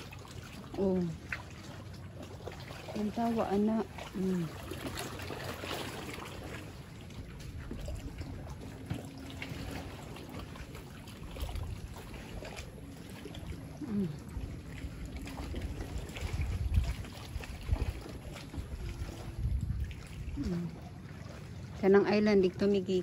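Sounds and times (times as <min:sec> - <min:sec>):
lapping water: 0:00.0 - 0:23.0
wind rumbling on microphone: 0:05.9 - 0:22.8.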